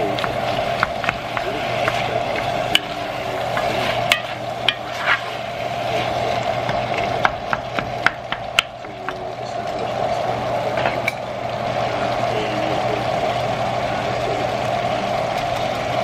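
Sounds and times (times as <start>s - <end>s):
meat and onions frying: 0.0s - 16.0s
steady hum: 0.0s - 16.0s
wooden spoon scraping pot: 0.1s - 7.3s.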